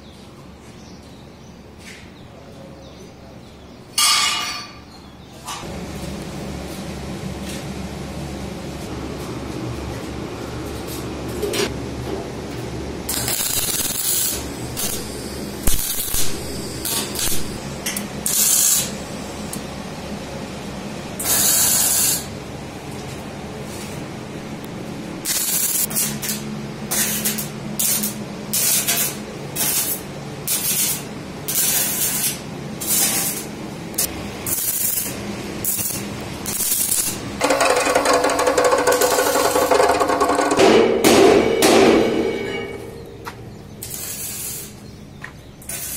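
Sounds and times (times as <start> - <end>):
chop saw cut-off wheel running: 36.5 - 40.7
short bursts of hiss: 43.8 - 44.8.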